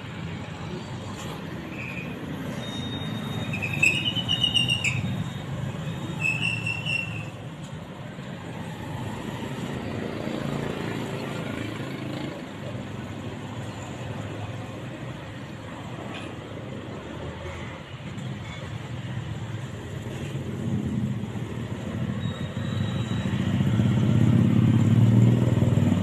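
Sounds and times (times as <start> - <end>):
road traffic: 0.0 - 26.0
high-pitched squeals: 1.5 - 7.4.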